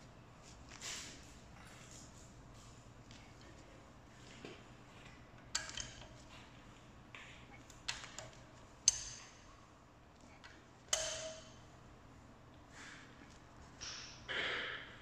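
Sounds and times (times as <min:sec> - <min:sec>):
wrench metallic pings: 0:10.9 - 0:11.7.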